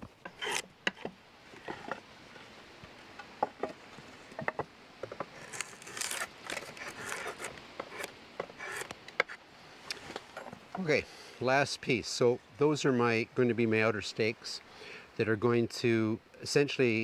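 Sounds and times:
drawknife scraping wood: 0:00.0 - 0:02.0, 0:05.0 - 0:09.4.

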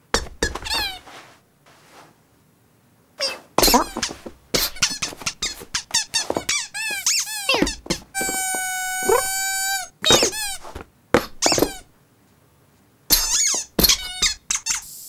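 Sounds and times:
cartoon kitten squeaks: 0:00.2 - 0:01.0, 0:03.2 - 0:10.7, 0:13.1 - 0:15.0.

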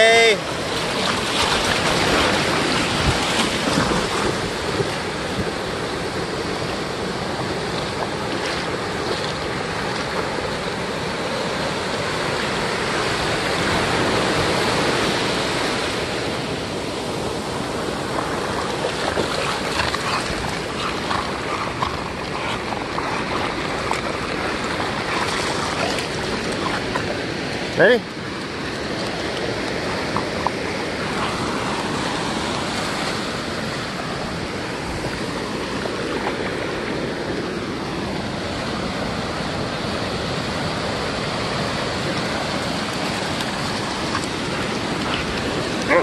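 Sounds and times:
ocean surf breaking: 0:00.0 - 0:46.0
wind buffeting microphone: 0:00.8 - 0:11.2.

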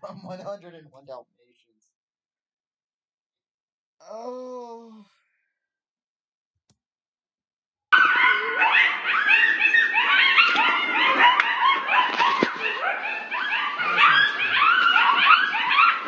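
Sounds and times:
dogs barking together: 0:08.0 - 0:16.0.

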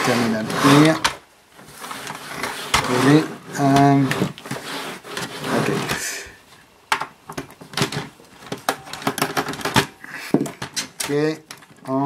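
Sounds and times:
scraping rustle: 0:00.0 - 0:06.7.

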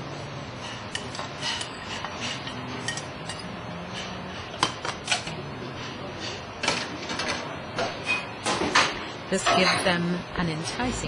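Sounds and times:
metal utensil clinking in saucepan: 0:00.9 - 0:04.1.

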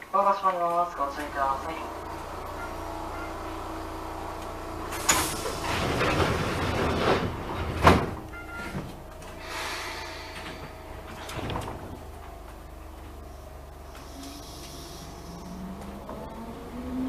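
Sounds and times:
pneumatic doors air rush: 0:04.9 - 0:08.1, 0:09.2 - 0:12.4, 0:13.2 - 0:17.0
sliding doors knocking: 0:05.0 - 0:09.0, 0:10.3 - 0:13.2.

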